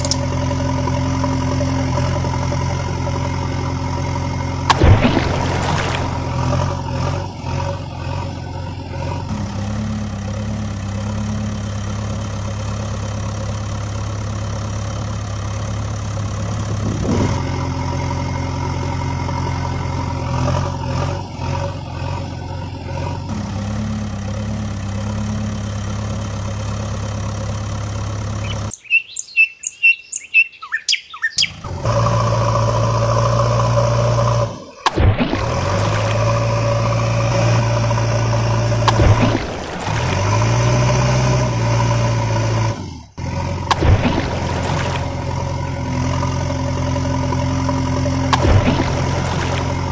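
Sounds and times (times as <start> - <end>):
loud engine drone: 0.0 - 28.8, 31.4 - 49.9
high chirps: 28.4 - 31.6.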